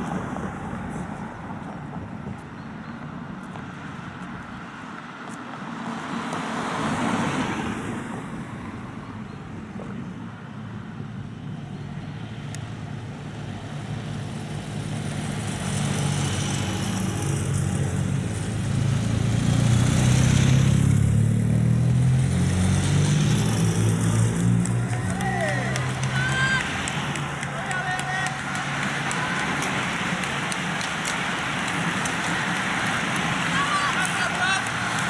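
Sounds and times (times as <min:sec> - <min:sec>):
motorcycles passing: 0:12.3 - 0:35.0
police car passing: 0:21.9 - 0:35.0.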